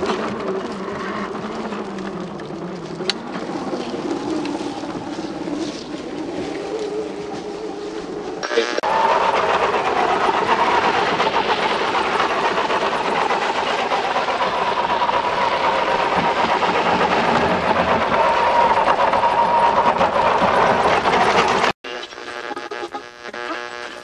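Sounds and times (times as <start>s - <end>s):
electric motor whine: 8.4s - 9.3s.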